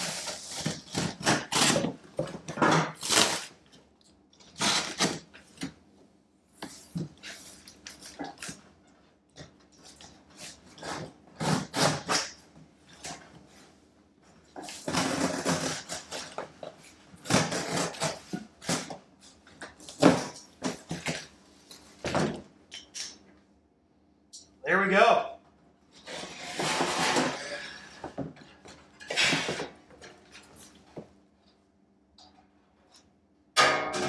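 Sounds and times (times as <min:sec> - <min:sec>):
box cutter slicing cardboard: 0:00.0 - 0:02.0, 0:10.8 - 0:12.4, 0:17.2 - 0:18.9.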